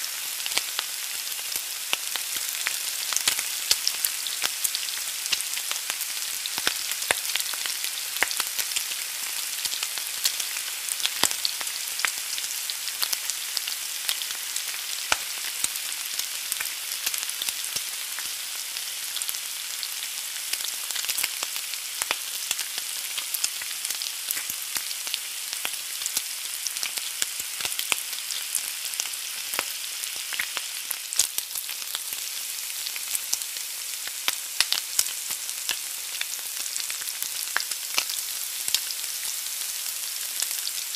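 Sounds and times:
egg sizzling in a skillet: 0:00.0 - 0:40.9.

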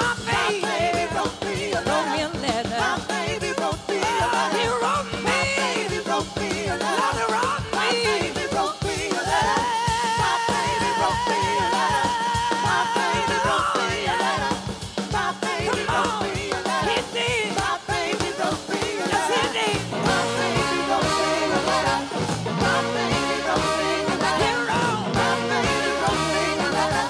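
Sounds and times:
drums beating: 0:00.0 - 0:27.0
live soul-rock band: 0:00.0 - 0:27.0
woman singing: 0:00.0 - 0:27.0
horn section: 0:19.1 - 0:27.0.

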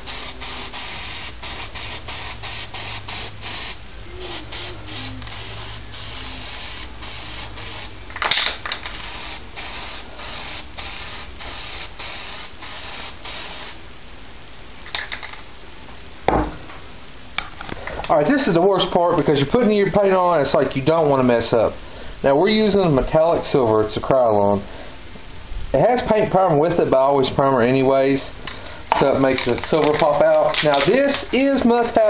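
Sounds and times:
spray can hissing spurts: 0:00.0 - 0:13.8
thump: 0:16.3 - 0:16.8.

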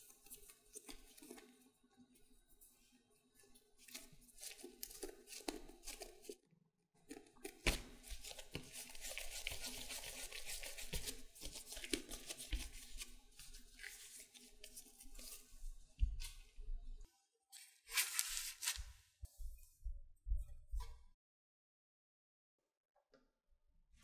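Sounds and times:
hands rubbing bread dough: 0:07.5 - 0:16.6, 0:17.9 - 0:19.8.

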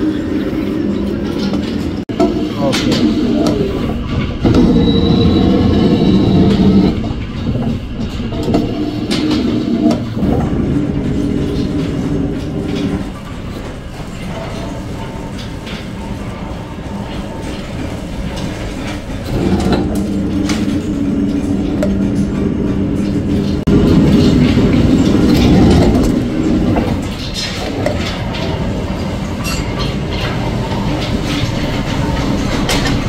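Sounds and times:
metal planing machine rumble: 0:00.0 - 0:33.0.

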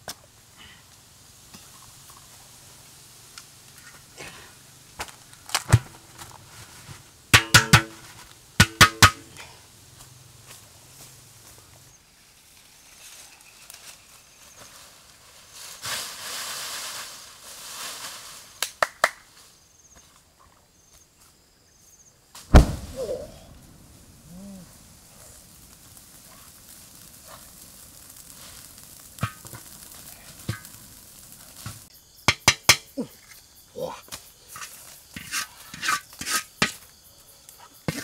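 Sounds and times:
leaf fire crackling: 0:00.0 - 0:20.3, 0:22.2 - 0:38.0
dry leaves rustling: 0:10.3 - 0:18.6, 0:22.5 - 0:31.9
sharp snaps: 0:18.6 - 0:19.2, 0:22.5 - 0:23.7
loud thump: 0:22.5 - 0:24.0.

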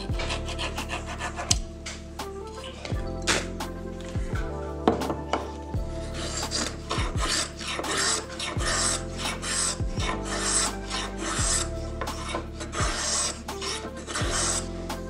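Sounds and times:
hand plane shaving wood: 0:00.0 - 0:01.6, 0:06.1 - 0:14.7.

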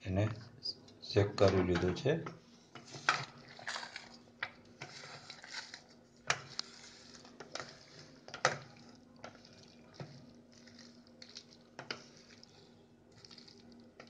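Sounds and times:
spoon mixing thick gravy: 0:02.8 - 0:14.0.

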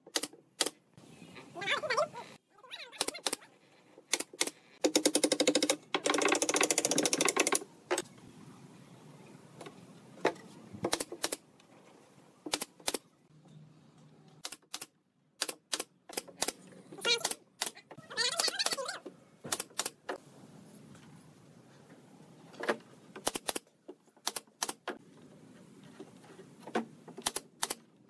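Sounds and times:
nail gun firing: 0:00.1 - 0:00.8, 0:04.1 - 0:08.0, 0:14.4 - 0:17.8, 0:23.2 - 0:23.6, 0:24.2 - 0:25.0, 0:27.2 - 0:27.8.

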